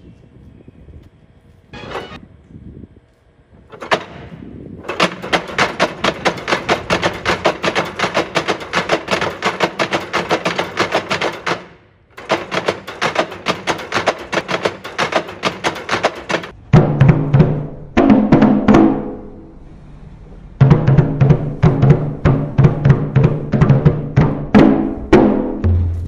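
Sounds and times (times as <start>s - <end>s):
wooden beaters knocking: 4.9s - 16.6s.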